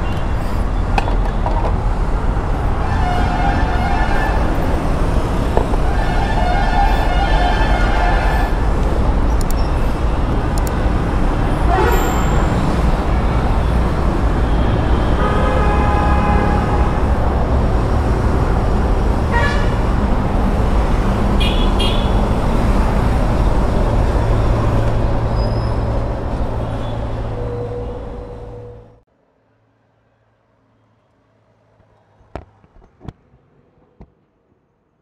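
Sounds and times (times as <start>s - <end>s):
road traffic rumble: 0.0s - 35.0s
vehicle horn: 2.8s - 4.7s, 5.9s - 8.6s, 11.7s - 12.6s, 14.4s - 17.2s, 19.3s - 19.8s, 21.4s - 22.3s.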